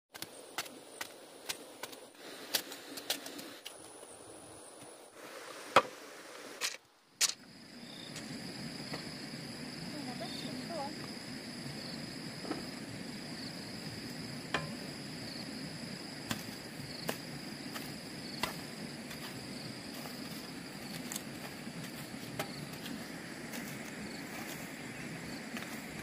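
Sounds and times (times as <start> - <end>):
insects buzzing: 0.2 - 26.0.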